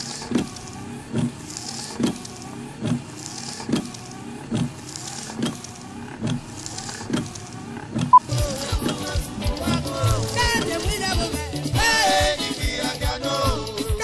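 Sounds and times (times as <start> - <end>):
rhythmic low thumps: 8.2 - 14.0.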